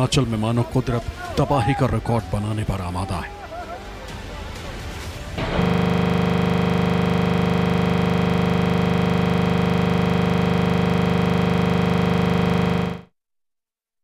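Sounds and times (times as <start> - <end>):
electronic buzzing drone: 5.4 - 13.1.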